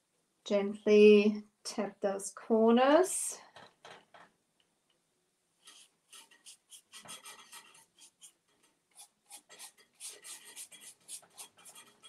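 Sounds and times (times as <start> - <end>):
paintbrush scratching on wood: 5.6 - 12.0.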